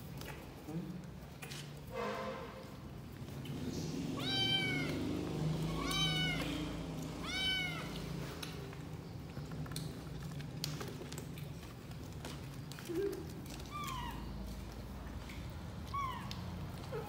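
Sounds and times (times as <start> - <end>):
kitten meowing: 4.2 - 5.0, 5.6 - 8.0, 13.6 - 14.2, 15.9 - 17.0.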